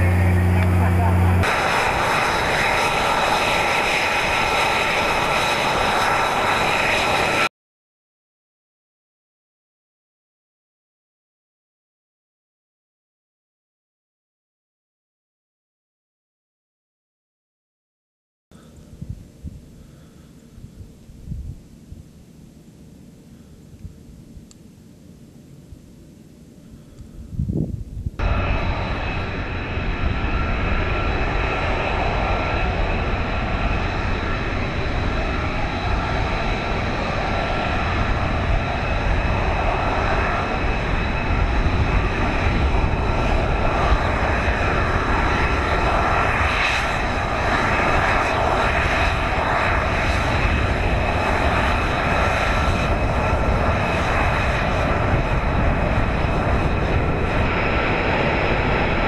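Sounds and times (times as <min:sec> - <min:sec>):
high jet whine: 0:00.0 - 0:07.5, 0:18.6 - 0:59.0
jet engine running: 0:00.0 - 0:07.5, 0:26.3 - 0:59.0.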